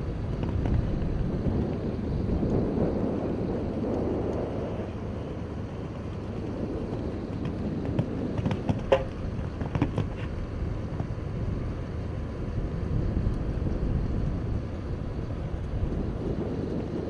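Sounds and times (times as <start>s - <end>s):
wind rumble on microphone: 0.0s - 17.0s
horse hooves knocking: 6.2s - 11.2s.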